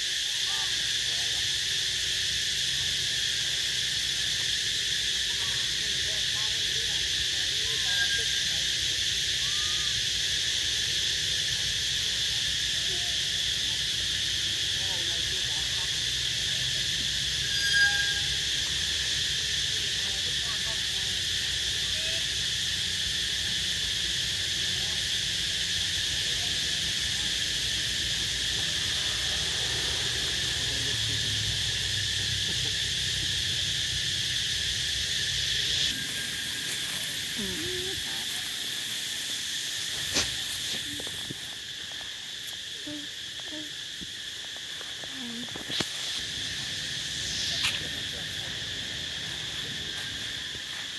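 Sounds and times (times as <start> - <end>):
insects droning: 0.0 - 50.9
short squeak: 17.4 - 18.5.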